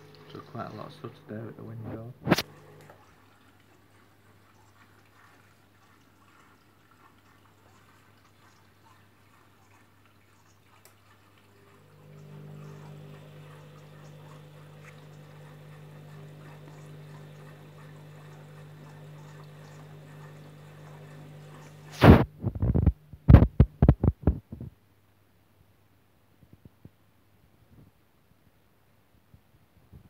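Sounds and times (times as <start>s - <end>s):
water sloshing: 0.0s - 23.8s
washing machine motor humming: 0.0s - 24.2s.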